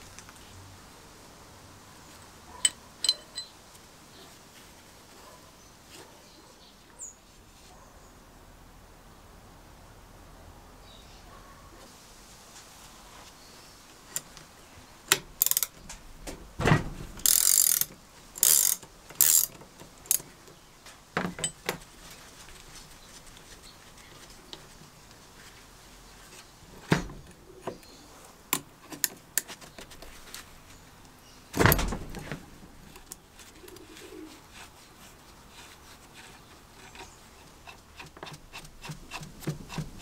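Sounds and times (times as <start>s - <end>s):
metal clicks and knocks: 2.6s - 3.5s
heavy metal clunk: 31.6s - 32.4s.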